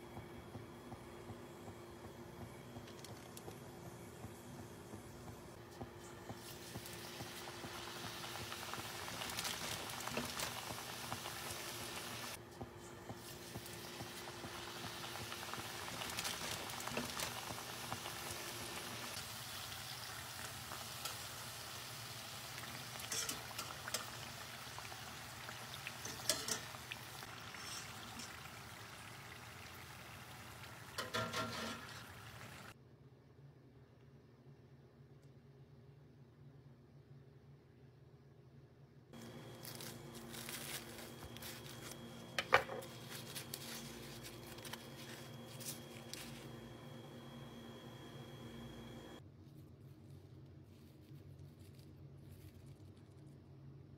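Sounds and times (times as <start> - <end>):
food deep-frying in hot oil: 6.2 - 12.4, 13.1 - 32.8.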